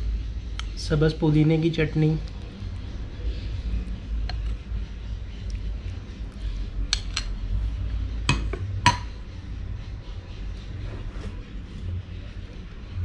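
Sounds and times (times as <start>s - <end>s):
low steady hum: 0.0s - 13.0s
metal spoon clinking against dishes: 6.9s - 7.4s, 8.3s - 9.1s.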